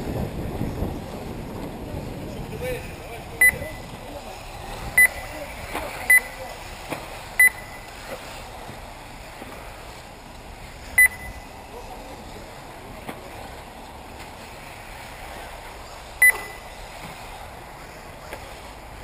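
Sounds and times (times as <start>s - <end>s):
steady outdoor hiss: 0.0s - 19.0s
short electronic beeps: 3.4s - 3.9s, 5.0s - 5.3s, 6.1s - 6.4s, 7.4s - 7.9s, 11.0s - 11.5s, 16.2s - 16.7s.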